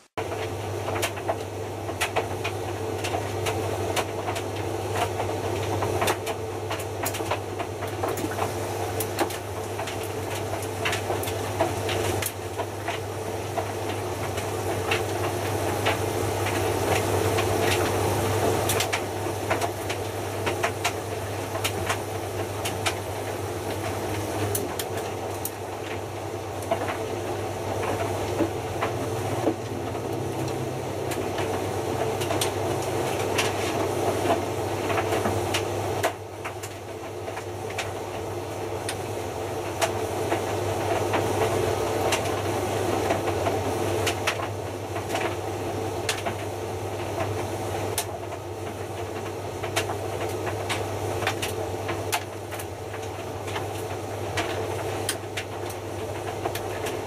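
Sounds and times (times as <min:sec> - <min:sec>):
washing machine drum tumbling: 0:20.6 - 0:37.2.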